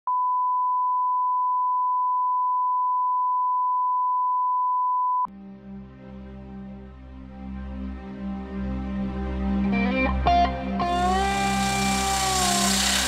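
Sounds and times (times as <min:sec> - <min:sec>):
gentle music: 0:05.3 - 0:13.0.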